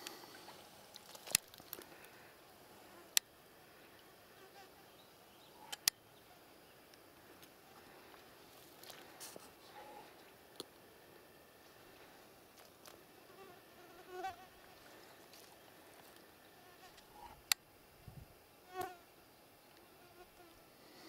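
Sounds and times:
faint outdoor background: 0.0 - 21.0
sharp click: 5.7 - 6.0
flying insect buzzing: 13.2 - 15.0.

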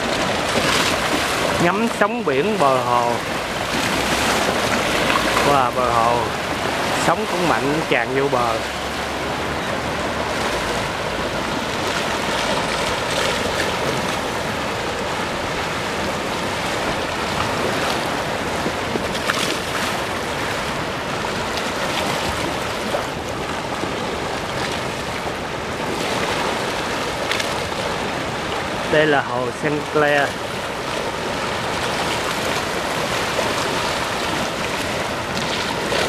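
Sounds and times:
water rushing over walkway: 0.0 - 36.0
waves breaking against wall: 0.0 - 36.0.

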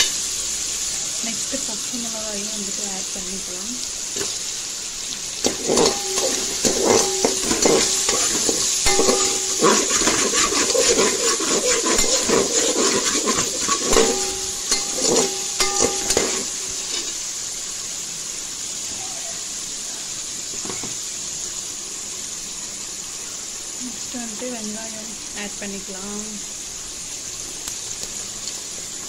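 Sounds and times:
food sizzling in hot oil: 0.0 - 29.0
metal spatula scraping pot: 5.4 - 17.2.

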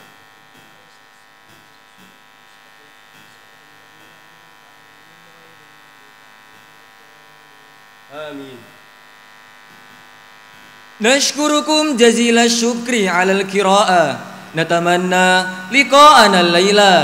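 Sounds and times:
electrical buzz through speakers: 0.0 - 17.0
crowd murmuring recitation: 11.0 - 17.0.

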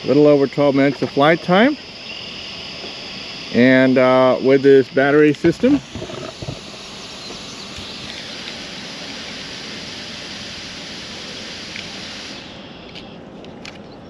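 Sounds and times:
drone cooling fan hiss: 0.0 - 14.0.

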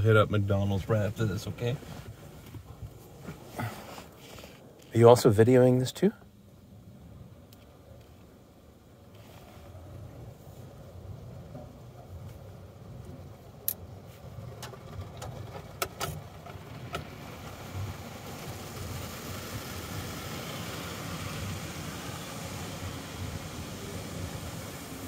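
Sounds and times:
car wash low rumble: 0.0 - 25.0
water spray hissing on glass: 17.1 - 25.0.

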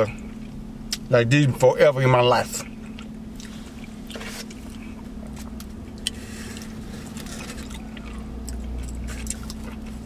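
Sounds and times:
vehicle cabin hum: 0.0 - 10.0
chewing: 2.8 - 10.0.

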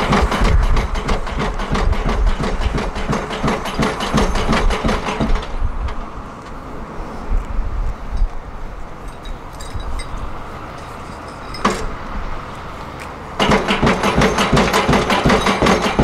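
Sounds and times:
pile driver hammer pounding: 0.0 - 5.7, 13.4 - 16.0
rig engine running: 0.0 - 16.0.

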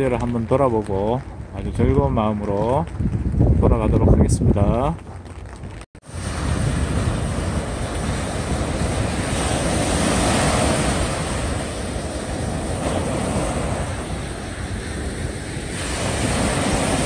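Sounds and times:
small waves washing on beach: 6.0 - 17.0.

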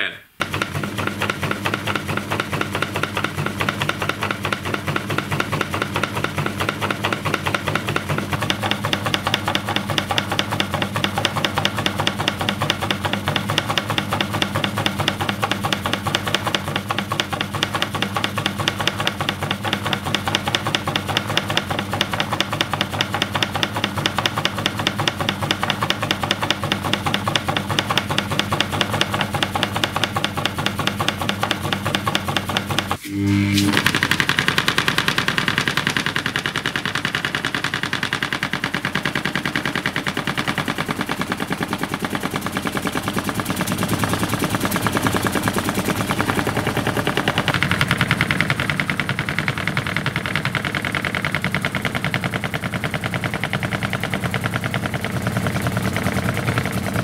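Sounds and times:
motor hum: 27.2 - 49.0.

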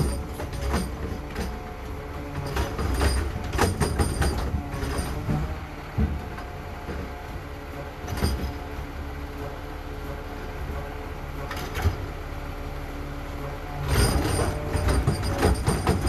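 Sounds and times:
clanking and banging: 0.0 - 8.9, 13.8 - 16.0
garbage truck engine running: 0.0 - 16.0.

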